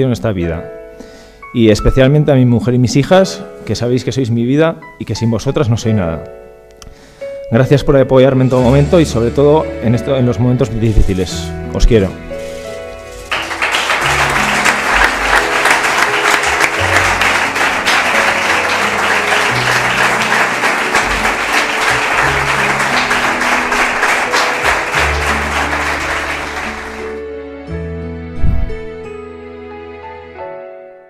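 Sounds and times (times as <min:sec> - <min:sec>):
soft background music: 0:00.0 - 0:31.0
crowd applauding: 0:13.2 - 0:27.2.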